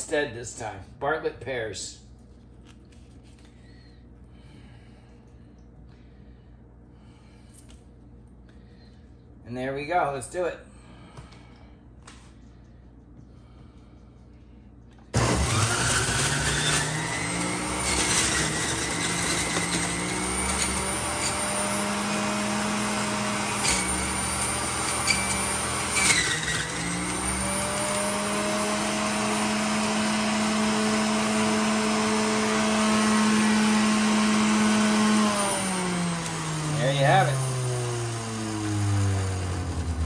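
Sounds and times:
juicer motor whining: 15.1s - 40.0s.

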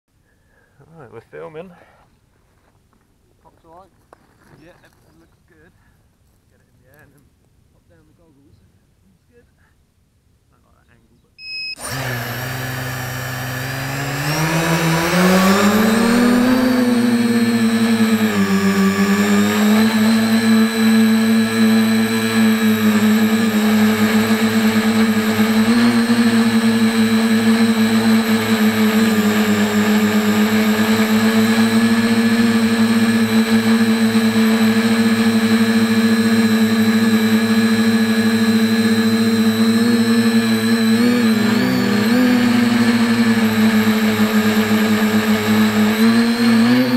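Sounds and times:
drone propellers whining: 11.4s - 46.9s.

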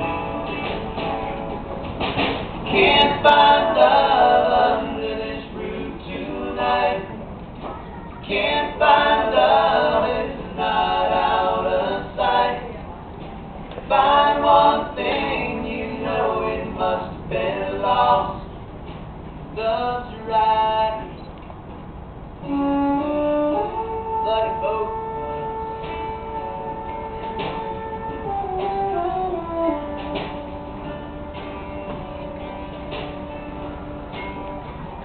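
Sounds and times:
voices singing in harmony: 2.6s - 7.4s, 8.2s - 13.0s, 13.8s - 18.6s.

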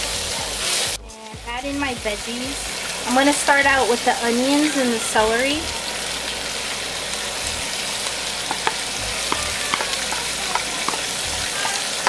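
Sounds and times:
food sizzling in oil: 2.2s - 12.0s
sharp clicks and pops: 8.4s - 12.0s.

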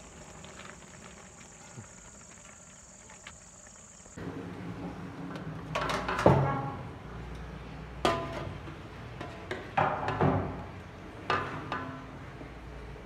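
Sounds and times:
crickets chirring: 0.0s - 4.2s.

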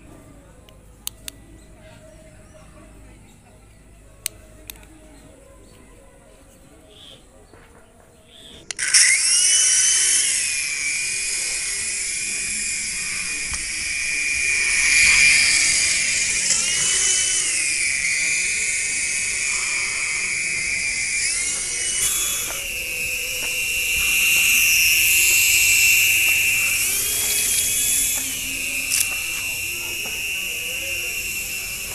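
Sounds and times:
rotor hiss: 8.4s - 31.9s
toy helicopter motor whine: 8.4s - 31.9s.

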